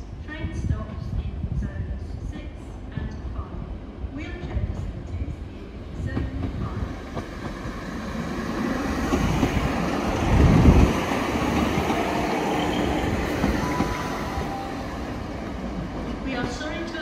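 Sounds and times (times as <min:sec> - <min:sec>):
diesel train passing: 0:05.6 - 0:17.0.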